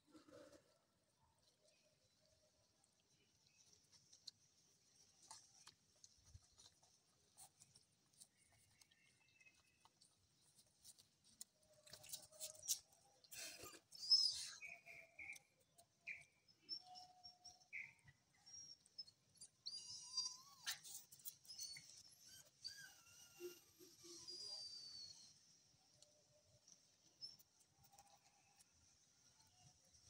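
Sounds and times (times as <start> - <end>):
puppies squeaking and whimpering: 12.0 - 15.0, 18.5 - 25.4
puppy squealing: 19.4 - 25.2.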